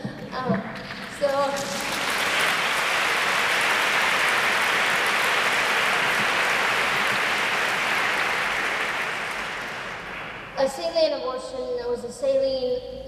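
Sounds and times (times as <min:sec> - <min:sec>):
audience applauding: 0:00.8 - 0:10.6.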